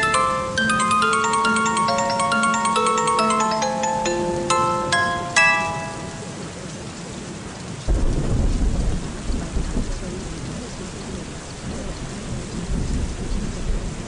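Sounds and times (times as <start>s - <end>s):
steady rain: 0.0s - 14.0s
thunder rumbling: 7.9s - 14.0s.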